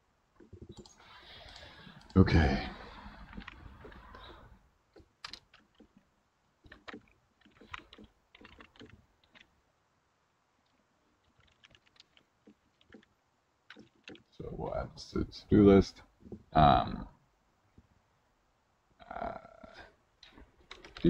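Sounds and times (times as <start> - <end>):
faint computer keyboard typing: 0.4 - 2.2, 3.2 - 9.5, 10.6 - 13.1, 13.7 - 14.3, 20.6 - 21.0.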